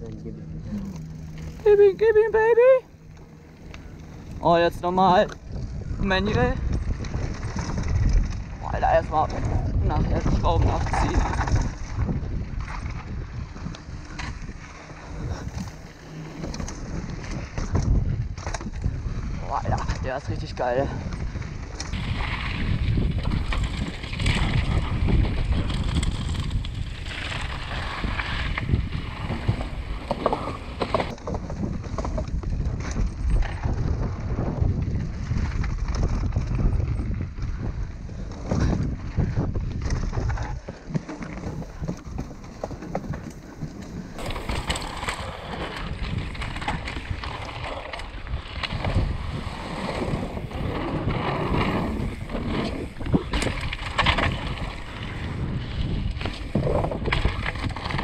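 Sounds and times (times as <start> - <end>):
wind buffeting microphone: 0.0 - 58.0
bike clattering over bumps: 2.9 - 20.2, 21.0 - 58.0
tyres rolling over gravel: 21.1 - 32.8, 38.3 - 58.0.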